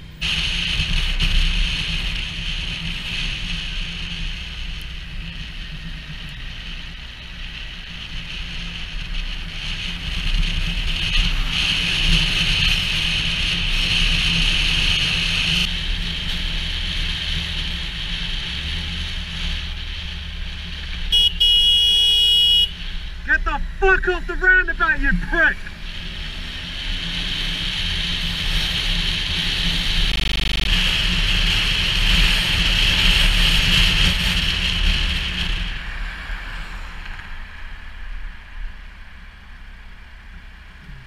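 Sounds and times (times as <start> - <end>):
motorcycle engine drone: 0.0 - 41.0
vehicle horn: 21.1 - 22.9.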